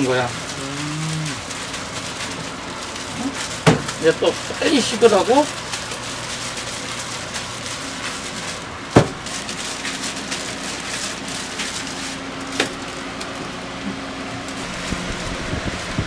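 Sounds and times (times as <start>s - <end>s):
electric fan hiss: 0.0s - 16.0s
gloved hands handling dough: 0.0s - 16.0s.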